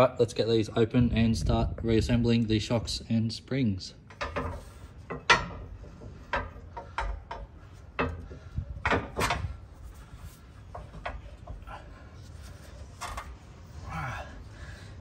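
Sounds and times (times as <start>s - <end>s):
coil spring clunking and scraping: 4.0s - 13.7s
sharp metal knocks: 4.1s - 9.5s.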